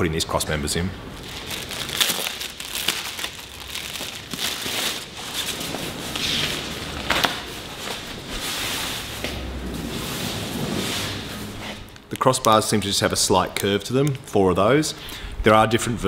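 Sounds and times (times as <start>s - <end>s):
plastic packaging crinkling: 1.1s - 9.2s, 9.9s - 14.7s
sharp crackle: 1.2s - 8.2s
fabric cover rustling: 1.2s - 12.0s.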